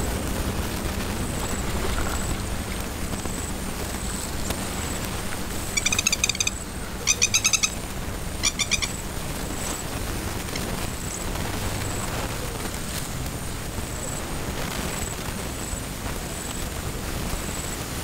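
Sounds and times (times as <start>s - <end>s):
low background rumble: 0.0s - 18.0s
bird calling in rapid notes: 5.5s - 9.2s.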